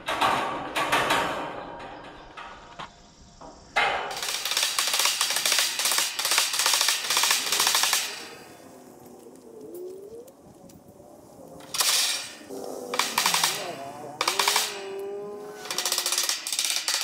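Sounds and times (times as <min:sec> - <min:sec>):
impact driver rattling: 0:13.0 - 0:14.8.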